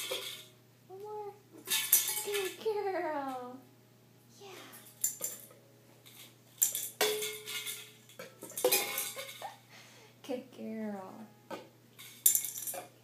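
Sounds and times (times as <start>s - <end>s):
cans and cups clattering on carpet: 0.0s - 0.5s, 5.1s - 9.6s.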